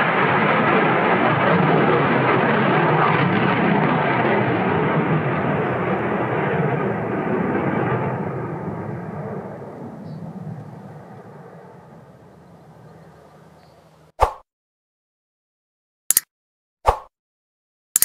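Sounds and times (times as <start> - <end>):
jet engine in flight: 0.0 - 14.1.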